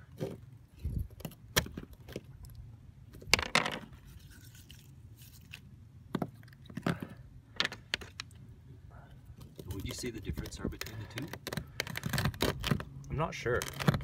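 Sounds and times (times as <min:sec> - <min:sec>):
sea urchin spines scraping and knocking: 0:03.2 - 0:08.3, 0:09.4 - 0:14.0.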